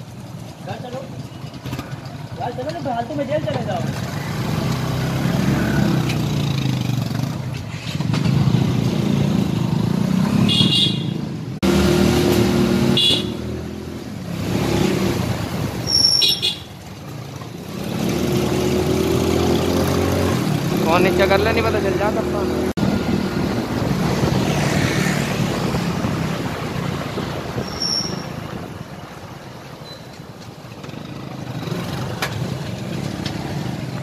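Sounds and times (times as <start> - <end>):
motorcycle engines running: 0.0 - 34.0
short horn toots: 12.9 - 13.5.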